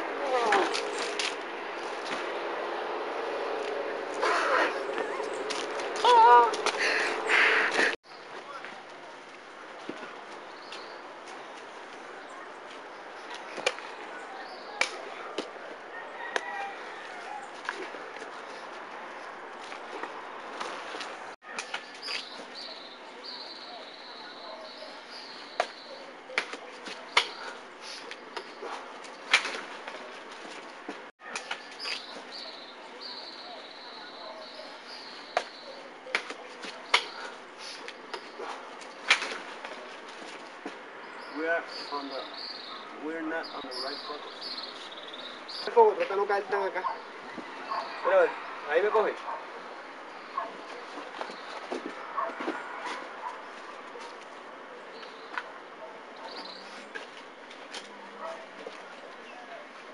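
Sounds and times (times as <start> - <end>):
sharp impacts of blows: 37.9 - 40.8.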